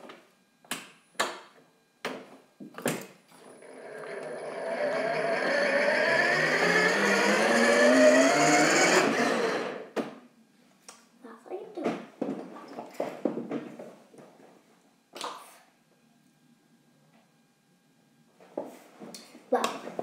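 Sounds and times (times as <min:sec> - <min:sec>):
electric motor whine rising: 0:03.3 - 0:10.0.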